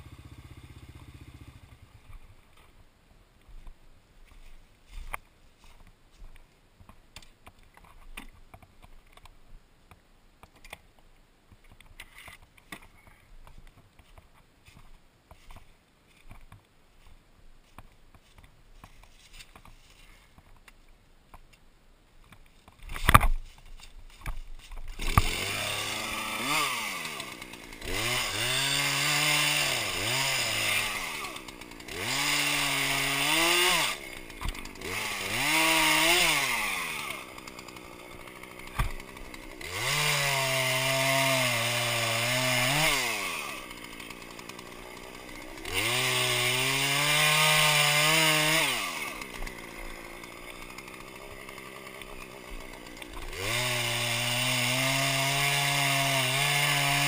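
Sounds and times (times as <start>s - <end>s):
chainsaw revving: 0.0s - 2.0s, 24.9s - 57.0s.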